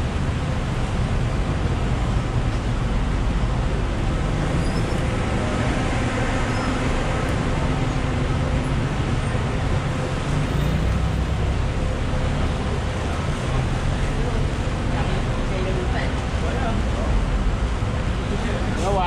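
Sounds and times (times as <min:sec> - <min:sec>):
vehicle traffic noise: 0:00.0 - 0:19.0.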